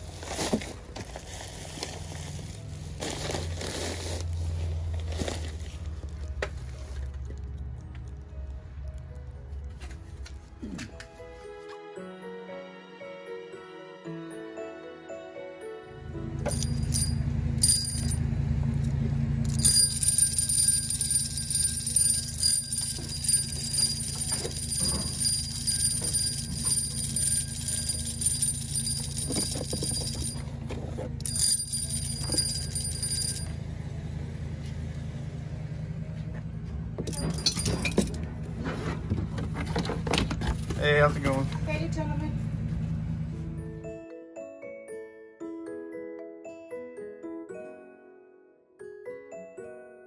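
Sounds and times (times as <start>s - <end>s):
toy bell ringing: 16.4s - 18.2s, 19.4s - 30.4s, 31.2s - 33.6s, 37.1s - 38.1s.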